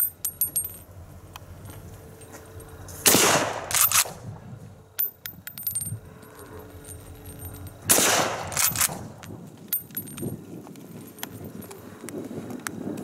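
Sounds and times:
rifle shots: 3.0s - 4.2s, 7.9s - 9.2s.

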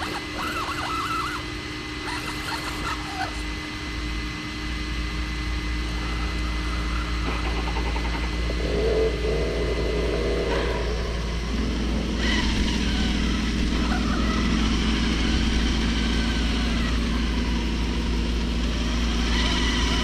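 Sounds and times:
electric motor and gearbox whine: 0.0s - 20.0s
low rumble: 5.4s - 18.6s.

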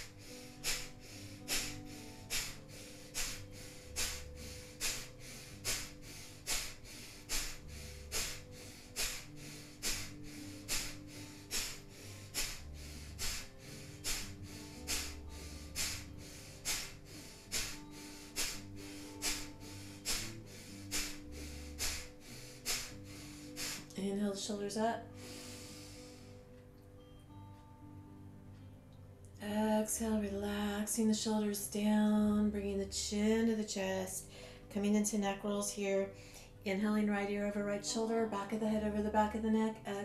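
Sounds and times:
person breathing hard through nose: 0.0s - 24.0s, 25.1s - 26.5s, 34.2s - 34.7s
soft background music: 0.0s - 40.0s.

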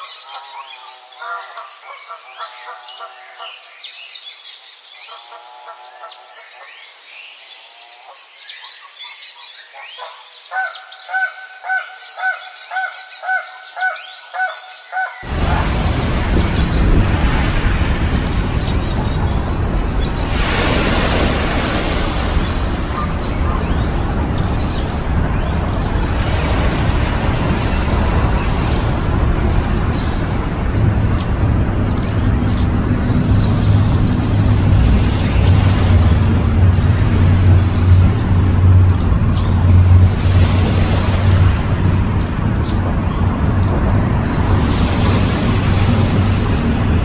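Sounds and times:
outdoor rumble and hiss: 15.2s - 47.0s.

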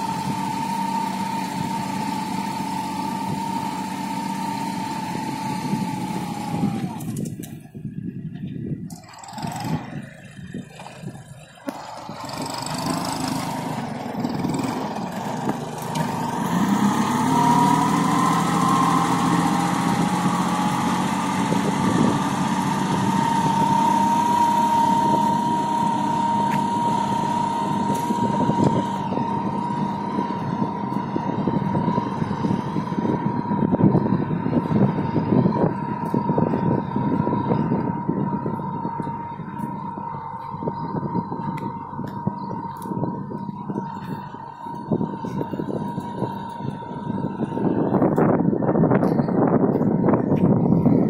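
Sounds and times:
tractor diesel engine under load: 0.0s - 51.0s
high whine: 21.1s - 51.0s.

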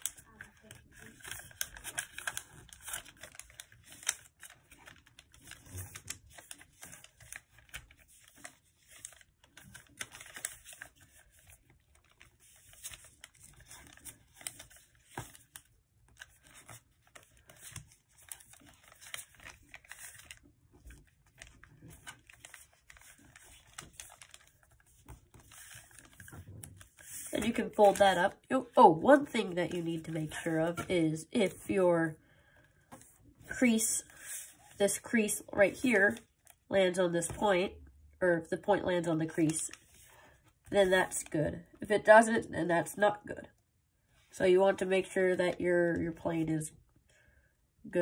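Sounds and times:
paper crinkling and rustling: 0.0s - 31.7s.

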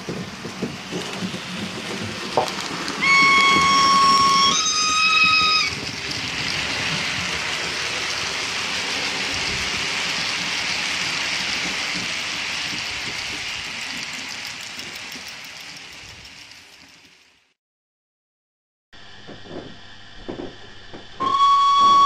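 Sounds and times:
model train running past hiss: 0.0s - 17.6s
model steam locomotive whistle: 3.0s - 5.8s, 21.2s - 22.0s.

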